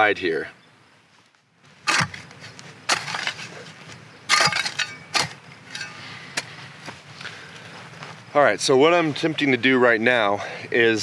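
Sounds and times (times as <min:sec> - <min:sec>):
dirt scraping and crunching: 0:01.1 - 0:09.8
hand shovel striking hard ground: 0:01.8 - 0:06.6.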